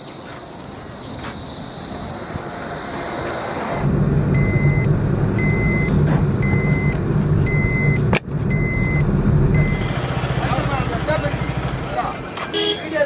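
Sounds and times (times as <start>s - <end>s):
crickets chirping: 0.0s - 13.0s
truck engine running: 0.4s - 13.0s
reversing alarm beeping: 3.8s - 12.0s.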